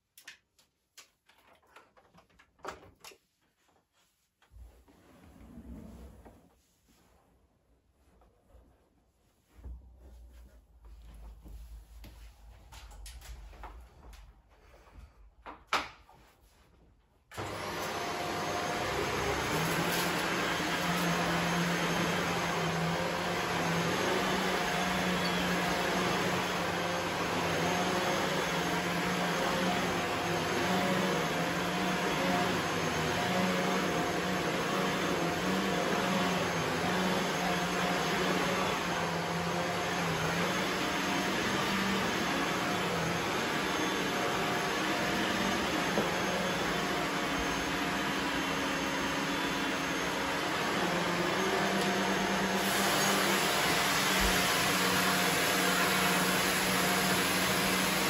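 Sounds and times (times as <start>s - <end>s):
vacuum cleaner on carpet: 17.3s - 58.0s.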